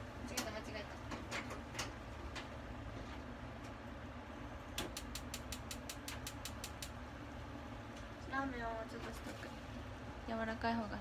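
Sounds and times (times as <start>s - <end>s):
steady low hum: 0.0s - 11.0s
gas stove igniter clicking: 4.7s - 7.0s.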